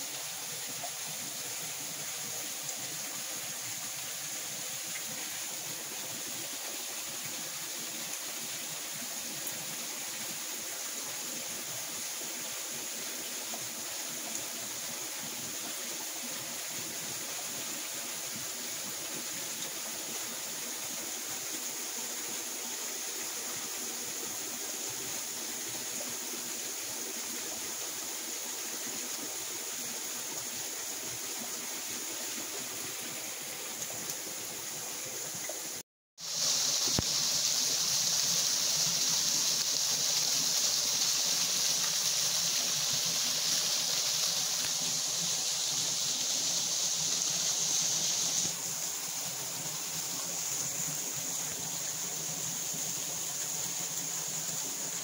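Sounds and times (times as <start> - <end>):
waterfall rushing: 36.2 - 55.0.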